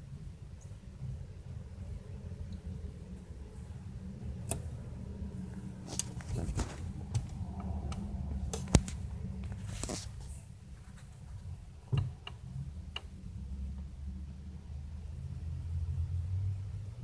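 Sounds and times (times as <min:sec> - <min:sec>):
phone microphone handling noise: 0:05.7 - 0:12.2.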